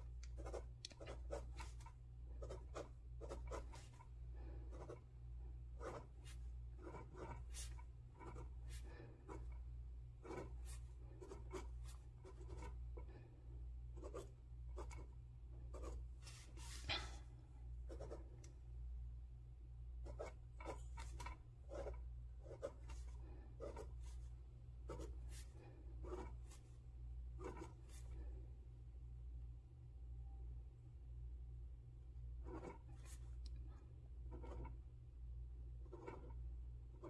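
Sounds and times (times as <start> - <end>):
steady low hum: 0.0 - 37.0
pen scratching on paper: 0.2 - 5.1, 5.7 - 13.2, 13.9 - 17.2, 17.8 - 18.4, 20.0 - 26.7, 27.3 - 28.3, 32.4 - 33.3, 34.2 - 34.9, 35.8 - 37.0.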